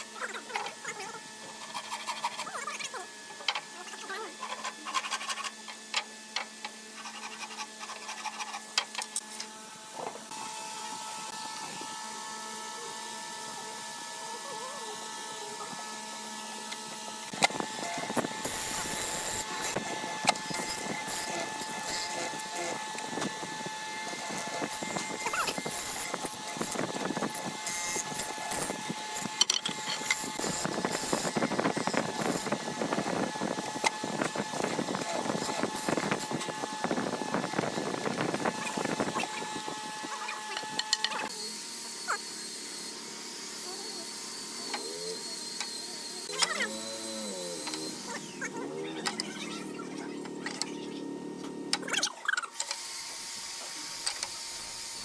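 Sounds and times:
machine hum with a whine: 0.0s - 55.0s
hand saw cutting a board: 0.3s - 3.6s, 4.3s - 5.9s, 6.5s - 9.0s, 17.3s - 36.6s.

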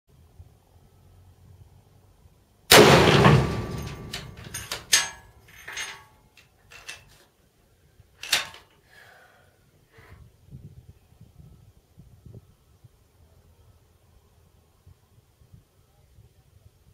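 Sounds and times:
rifle shot ringing: 2.7s - 5.2s
rifle bolt metallic clicks: 2.7s - 7.1s, 8.2s - 8.6s.

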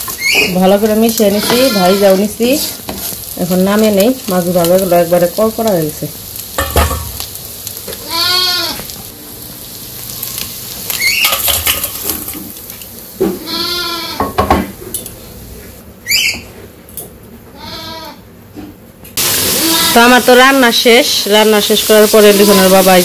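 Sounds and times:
light sizzle: 0.0s - 18.2s, 19.0s - 23.0s
spatula scraping a wok: 1.2s - 3.4s
farm animal bleating: 1.3s - 2.2s, 8.0s - 8.8s, 13.4s - 14.2s, 17.5s - 18.2s, 19.6s - 20.0s.

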